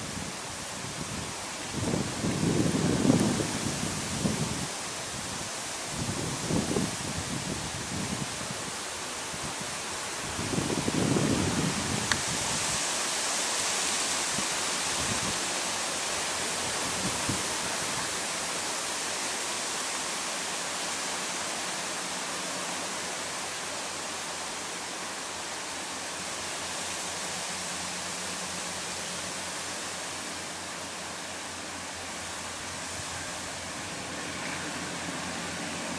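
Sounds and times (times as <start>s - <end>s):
wind buffeting microphone: 0.0s - 12.9s, 16.5s - 18.2s
wind through trees: 0.0s - 35.9s.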